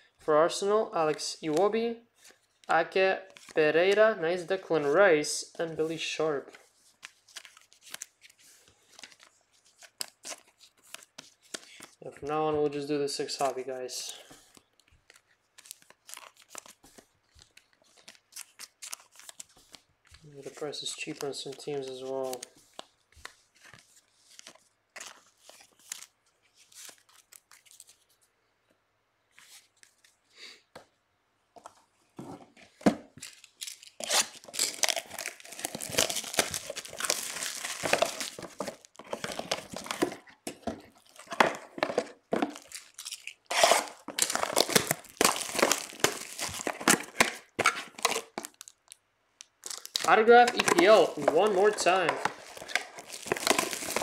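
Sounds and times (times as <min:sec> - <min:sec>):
plastic wrapping tearing and crinkling: 0:15.0 - 0:19.8, 0:33.2 - 0:54.0.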